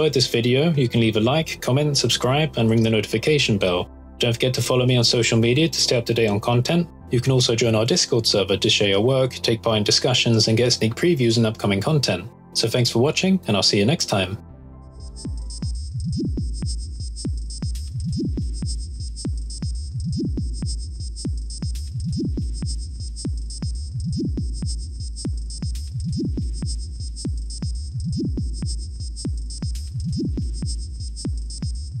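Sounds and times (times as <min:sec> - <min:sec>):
deep bass pulse: 0:00.0 - 0:07.8, 0:14.4 - 0:32.0
electronic music with clicking beat: 0:00.0 - 0:32.0.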